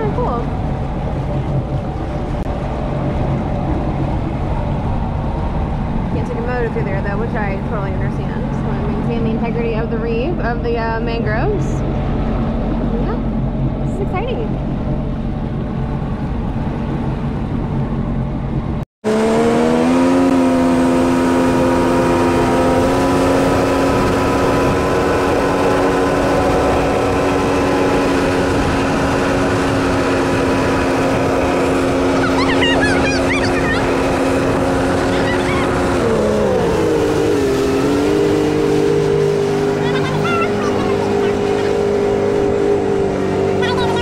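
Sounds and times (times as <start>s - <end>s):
jet ski engine running: 0.0s - 44.0s
rush of water and wind: 0.0s - 44.0s.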